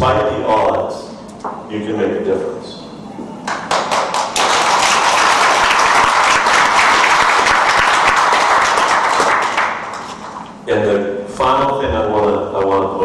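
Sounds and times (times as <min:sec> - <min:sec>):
audience applauding: 0:03.5 - 0:10.5.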